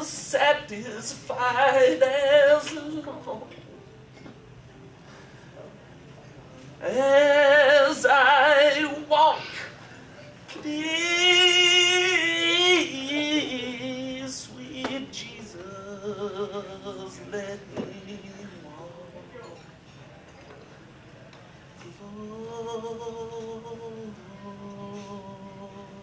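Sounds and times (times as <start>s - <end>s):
person singing with vibrato: 0.0s - 3.6s, 6.8s - 9.8s, 10.5s - 19.5s, 21.9s - 26.0s.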